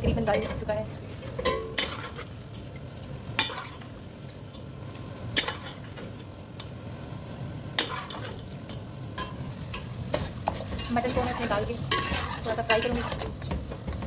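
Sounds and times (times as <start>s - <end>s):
sauce sizzling: 0.0s - 14.0s
metal spatula scraping a metal pot: 1.3s - 2.3s, 7.8s - 8.4s, 9.8s - 13.4s.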